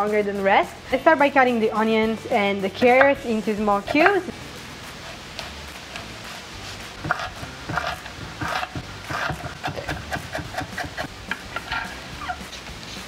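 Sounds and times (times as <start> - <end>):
knife chopping on wooden board: 7.0 - 11.9.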